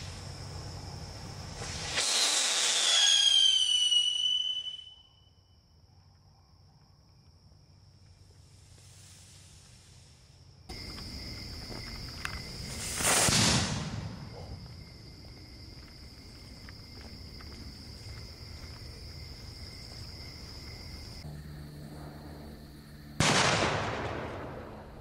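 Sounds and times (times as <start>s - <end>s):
firework rushing hiss: 0.0s - 4.6s, 8.4s - 10.4s, 12.6s - 14.2s
crickets chirping: 0.0s - 25.0s.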